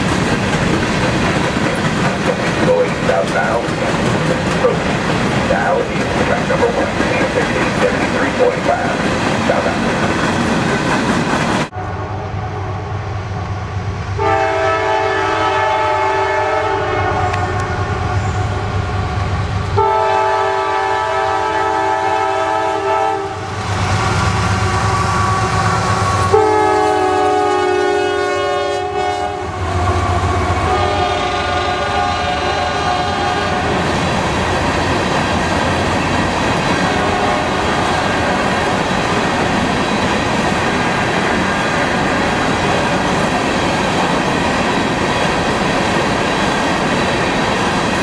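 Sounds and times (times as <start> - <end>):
freight train rumbling past: 0.0 - 48.0
locomotive air horn blasts: 14.2 - 18.7, 19.7 - 23.5, 24.8 - 33.7, 36.8 - 37.7.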